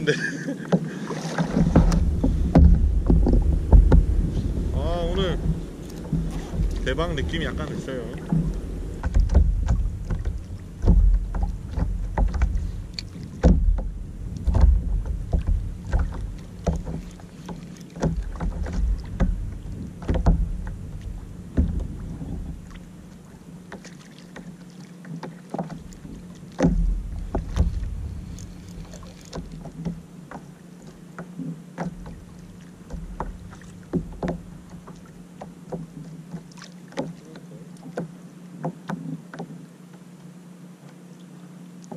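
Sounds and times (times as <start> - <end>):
waves lapping against kayak hull: 0.0 - 41.9
wind on microphone: 1.2 - 17.1, 18.2 - 22.8, 26.6 - 29.1.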